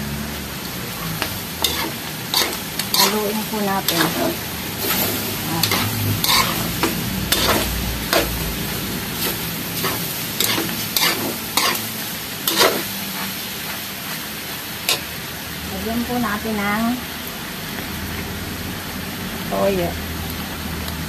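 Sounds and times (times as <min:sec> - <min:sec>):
sizzle of frying: 0:00.0 - 0:21.0
metal spatula scraping a wok: 0:01.2 - 0:15.1.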